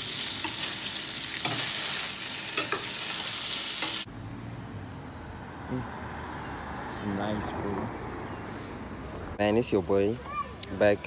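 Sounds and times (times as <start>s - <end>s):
sausage sizzling in a frying pan: 0.0s - 4.1s
tongs and fork clinking on pans: 0.4s - 4.0s.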